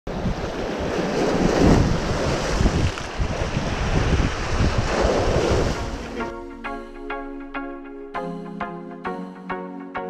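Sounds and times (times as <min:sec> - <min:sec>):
waves splashing against rocks: 0:00.1 - 0:06.3
wind buffeting microphone: 0:00.1 - 0:06.3.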